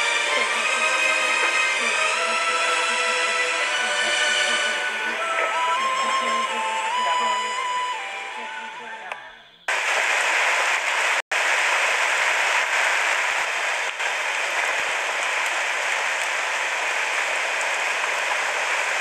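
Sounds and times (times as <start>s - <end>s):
water rushing hiss: 0.0s - 8.2s, 9.7s - 19.0s
background music: 0.0s - 9.6s.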